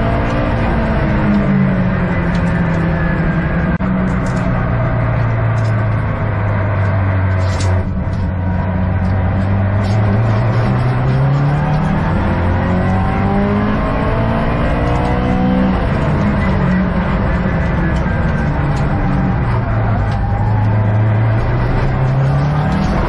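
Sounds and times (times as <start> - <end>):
car engine revving from cabin: 8.3 - 23.0.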